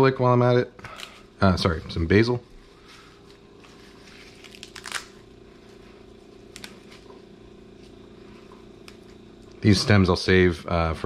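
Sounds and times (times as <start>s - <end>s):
low background hum: 0.0s - 11.0s
leaves rustling and tearing: 2.8s - 7.1s
leaf crinkle: 2.8s - 9.2s.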